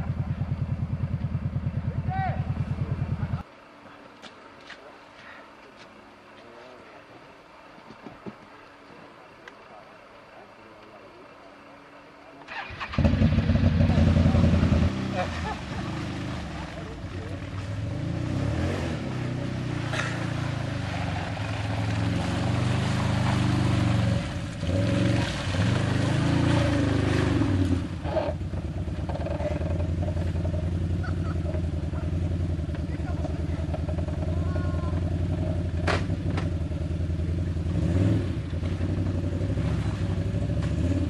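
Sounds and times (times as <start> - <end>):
quad bike engine revving: 12.5 - 41.0.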